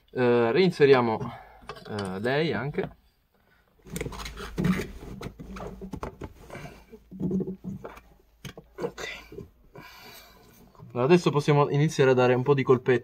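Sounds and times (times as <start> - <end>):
plastic scraping and rustling: 3.8 - 9.5.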